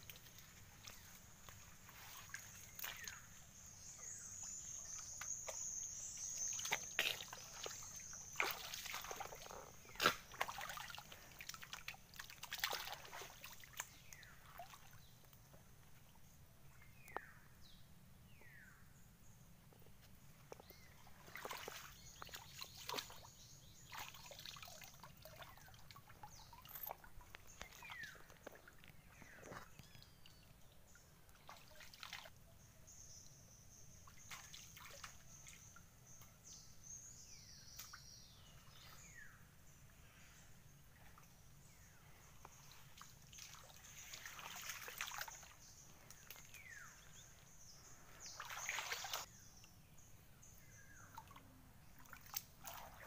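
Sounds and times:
water dripping: 0:00.0 - 0:03.4, 0:04.4 - 0:15.5, 0:23.9 - 0:32.3, 0:42.4 - 0:46.6, 0:52.0 - 0:53.0
muddy water sloshing and splashing: 0:00.0 - 0:15.3, 0:20.5 - 0:32.4, 0:34.0 - 0:35.7, 0:40.9 - 0:49.3, 0:51.1 - 0:53.0.

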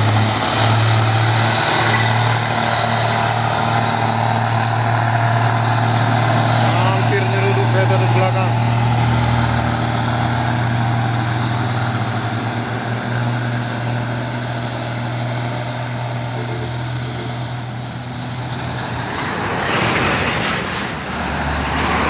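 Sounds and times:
diesel truck engine droning: 0:00.0 - 0:22.0
truck passing close: 0:00.0 - 0:22.0.

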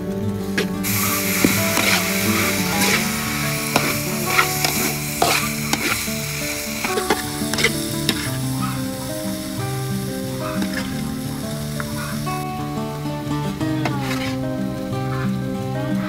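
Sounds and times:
vegetables sizzling in a wok: 0:00.4 - 0:15.6
metal spatula scraping a wok: 0:00.9 - 0:09.1, 0:13.9 - 0:14.4.

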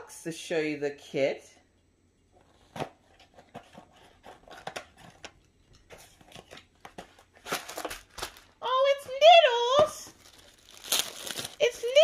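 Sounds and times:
cardboard rustling and scraping: 0:02.4 - 0:09.4.

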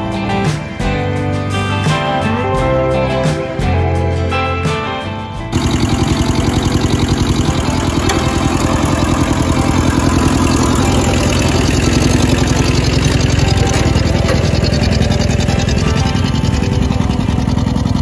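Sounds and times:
tractor diesel engine chugging: 0:05.5 - 0:18.0.

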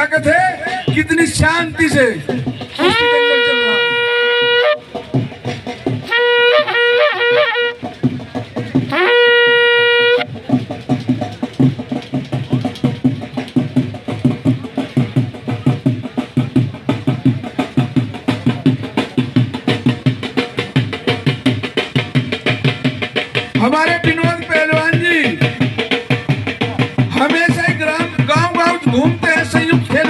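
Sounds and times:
drum beating fast rhythm: 0:00.0 - 0:30.0
wind instrument long held notes: 0:02.7 - 0:04.9, 0:06.1 - 0:07.8, 0:08.9 - 0:10.3.

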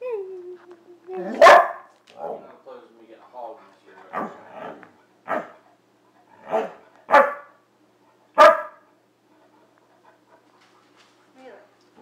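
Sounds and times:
dog barking: 0:01.3 - 0:02.5, 0:04.1 - 0:05.6, 0:06.4 - 0:07.6, 0:08.4 - 0:08.9.

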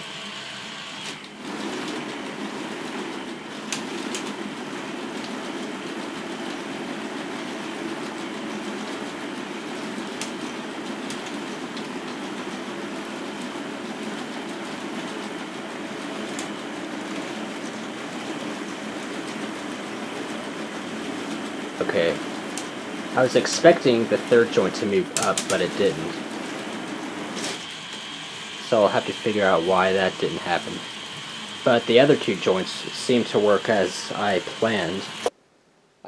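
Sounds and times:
sharp clicks: 0:25.2 - 0:25.6.

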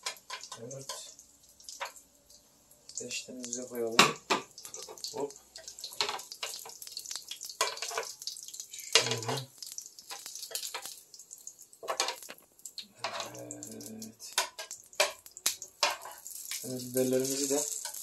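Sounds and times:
grill sizzling: 0:00.0 - 0:18.0
metal tongs scraping on grill: 0:07.6 - 0:08.2, 0:13.0 - 0:18.0.

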